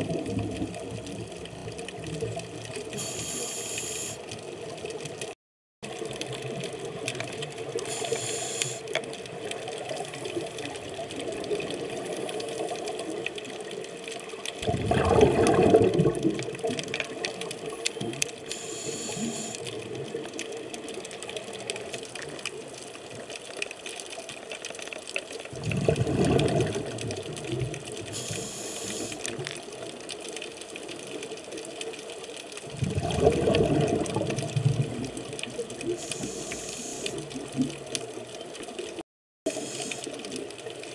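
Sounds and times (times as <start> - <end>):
underwater rumble: 0.0 - 40.9
high hisses: 3.0 - 4.2, 7.9 - 8.8, 18.5 - 19.6, 28.2 - 29.2
regulator bubbling exhalations: 14.6 - 16.6, 32.7 - 35.2.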